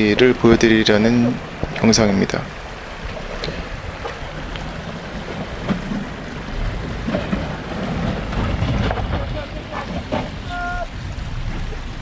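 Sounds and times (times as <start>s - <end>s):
engine rumble: 0.0s - 12.0s
wind noise on microphone: 0.0s - 12.0s
faint clicks: 3.1s - 4.7s.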